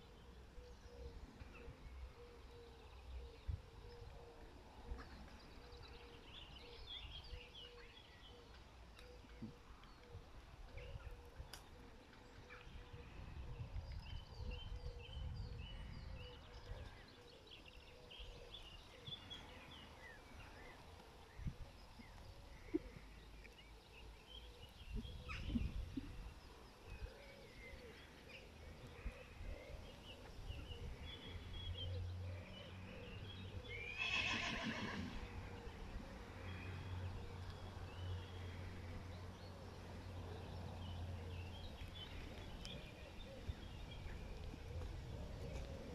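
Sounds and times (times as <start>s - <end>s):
horse whinnying: 33.9s - 35.2s.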